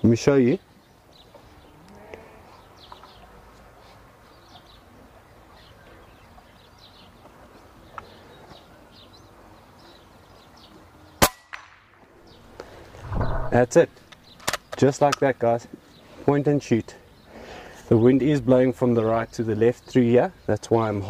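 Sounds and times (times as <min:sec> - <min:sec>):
small birds chirping: 0:00.0 - 0:11.2, 0:12.2 - 0:21.0
air rifle shot: 0:13.0 - 0:13.7.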